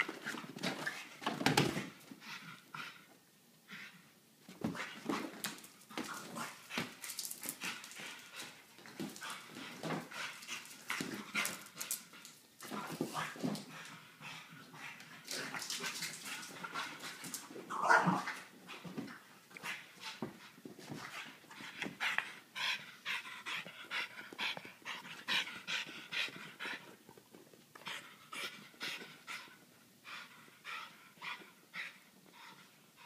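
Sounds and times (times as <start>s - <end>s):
dog noises: 13.1s - 26.9s.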